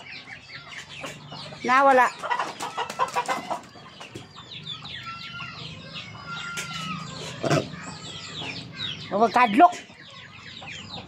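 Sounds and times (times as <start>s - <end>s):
chickens clucking: 0.0s - 11.0s
chirping calls: 0.0s - 11.0s.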